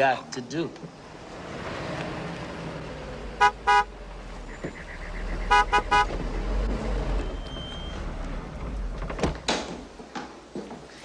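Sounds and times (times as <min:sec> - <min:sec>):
car engine rumble: 0:00.8 - 0:10.1
car horn tooting: 0:03.4 - 0:03.9, 0:05.4 - 0:06.2.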